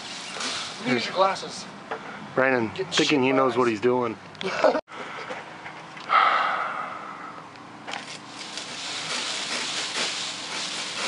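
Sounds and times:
dry palm fronds rustling: 0:08.0 - 0:11.0.

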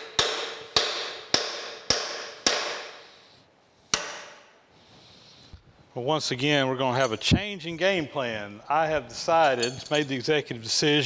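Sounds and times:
hammer blows ringing on metal: 0:00.0 - 0:03.0, 0:03.9 - 0:04.5.

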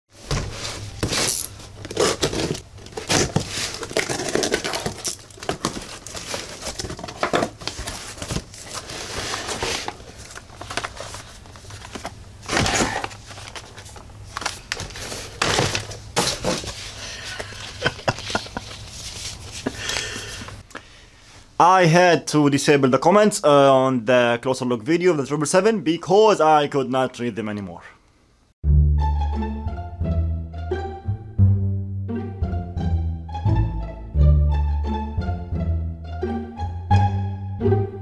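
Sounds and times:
paper packing crinkling: 0:00.2 - 0:20.6
packing tape tearing: 0:01.0 - 0:16.8.

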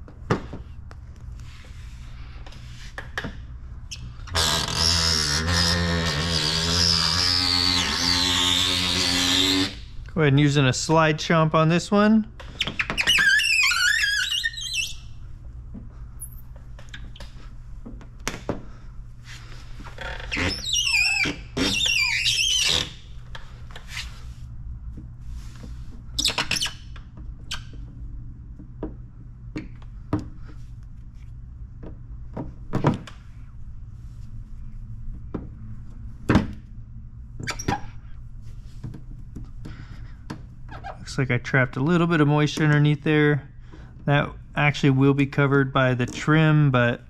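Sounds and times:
squeegee squeaking on film: 0:03.9 - 0:09.9, 0:12.4 - 0:15.2, 0:20.0 - 0:23.1, 0:26.2 - 0:27.8, 0:37.4 - 0:38.2, 0:40.7 - 0:41.1
steady low hum: 0:15.0 - 0:47.0.

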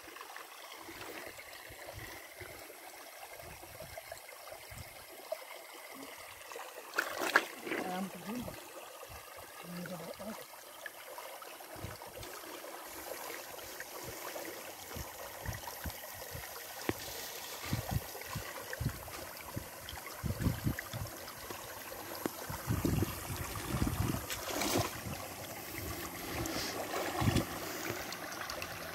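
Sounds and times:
stream flowing over stones: 0:00.0 - 0:28.9
person wading through water: 0:06.9 - 0:08.6, 0:11.7 - 0:28.9.

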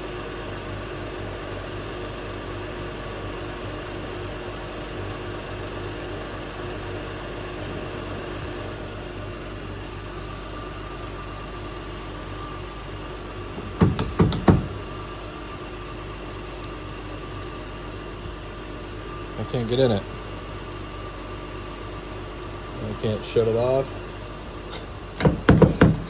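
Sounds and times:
door handle thumps: 0:13.6 - 0:14.8.

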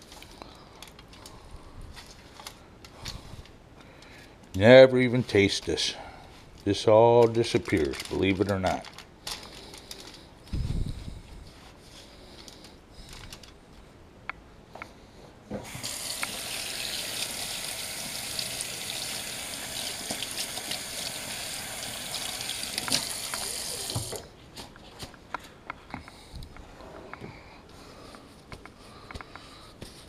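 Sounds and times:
faucet running into sink: 0:15.6 - 0:24.2.

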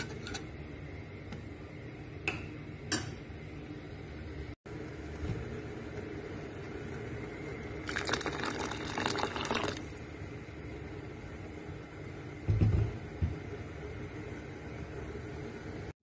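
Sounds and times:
steady low hum: 0:00.0 - 0:15.9
broth bubbling in a pot: 0:04.7 - 0:15.9.

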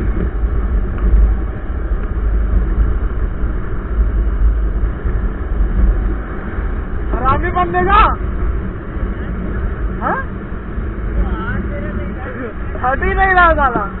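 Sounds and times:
motorcycle running: 0:00.0 - 0:14.0
wind buffeting microphone: 0:00.0 - 0:14.0.

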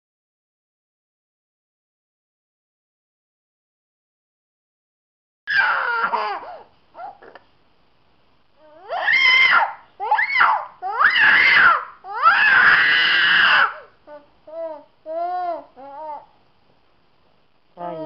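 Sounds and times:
boy wailing in pain: 0:05.5 - 0:07.1, 0:08.6 - 0:16.2
boy whimpering: 0:05.6 - 0:07.3, 0:08.6 - 0:09.0, 0:13.6 - 0:16.3.

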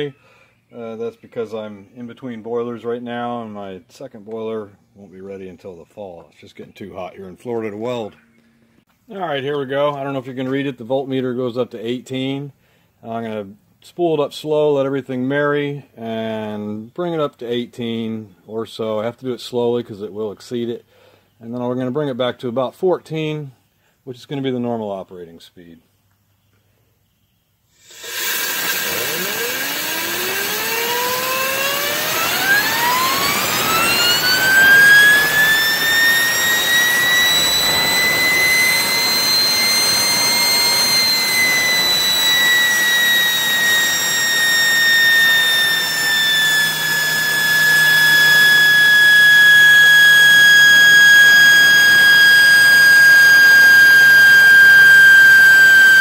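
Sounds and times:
turbine spooling up whine: 0:27.8 - 0:56.0
low hum: 0:27.9 - 0:56.0.

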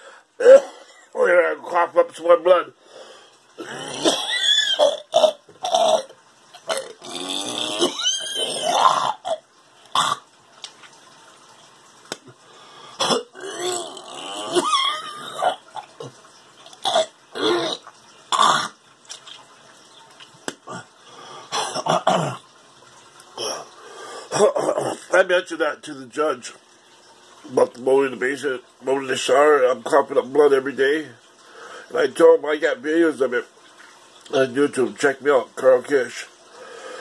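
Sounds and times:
man hacking and retching: 0:03.6 - 0:10.2, 0:16.8 - 0:18.8.

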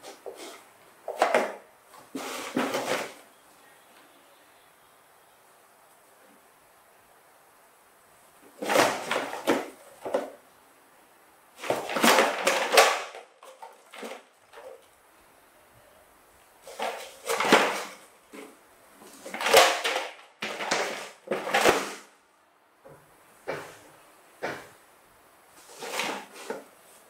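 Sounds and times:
plastic toy truck clattering on wood: 0:00.1 - 0:03.2, 0:08.5 - 0:10.4, 0:11.6 - 0:14.8, 0:16.6 - 0:22.1, 0:25.6 - 0:26.7.

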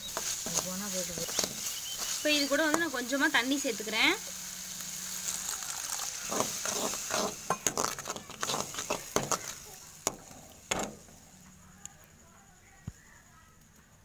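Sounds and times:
metal spatula scraping pan: 0:00.0 - 0:02.9, 0:05.0 - 0:11.1
paste sizzling in hot pan: 0:00.0 - 0:11.5.

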